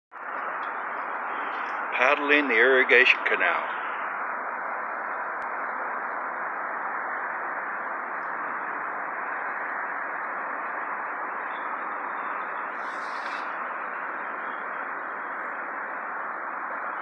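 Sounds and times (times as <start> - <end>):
steady rushing noise: 0.2 - 17.0
short higher hiss: 12.7 - 13.6.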